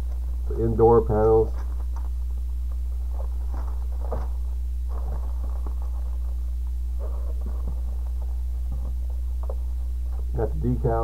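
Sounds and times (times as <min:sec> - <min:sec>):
steady low hum: 0:00.0 - 0:11.0
plastic bags rustling: 0:01.6 - 0:09.5.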